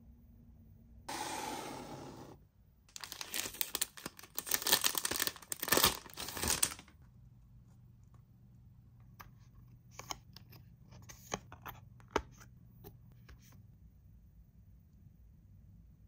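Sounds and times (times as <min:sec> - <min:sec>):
packaging crinkling and tearing: 0:02.9 - 0:06.9.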